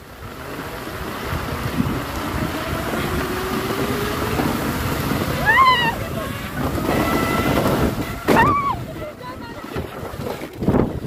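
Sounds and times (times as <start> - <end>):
wind on microphone: 0.0 - 11.0
wooden cart rattling on slats: 9.4 - 11.0.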